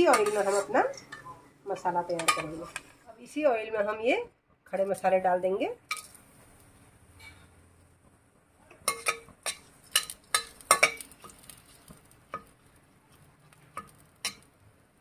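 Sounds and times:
faint oil sizzle: 0:00.0 - 0:01.1, 0:05.0 - 0:07.9, 0:08.7 - 0:15.0
spoon clinking against metal pan: 0:02.1 - 0:02.6, 0:08.7 - 0:11.4.

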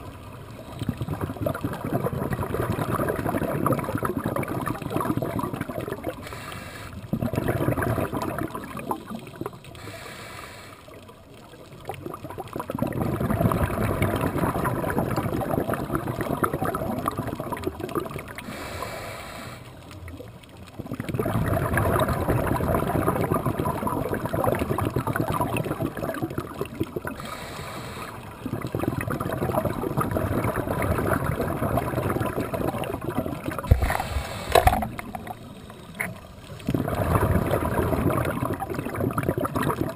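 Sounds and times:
underwater exhaust bubbles crackling: 0:00.0 - 0:39.9
regulator hiss of breathing in: 0:06.2 - 0:07.0, 0:09.8 - 0:11.0, 0:18.4 - 0:19.9, 0:27.2 - 0:28.4, 0:33.8 - 0:34.9.

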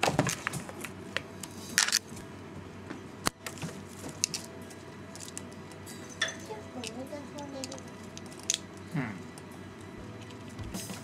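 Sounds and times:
toy rustling and claw clicks: 0:04.1 - 0:04.5, 0:05.1 - 0:05.8, 0:06.4 - 0:09.5.

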